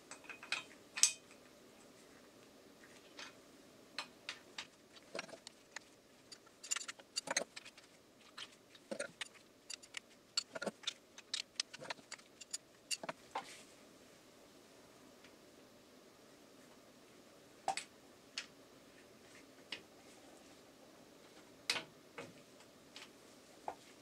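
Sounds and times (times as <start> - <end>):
hand tools clicking on metal: 5.1 - 7.7, 8.9 - 13.1.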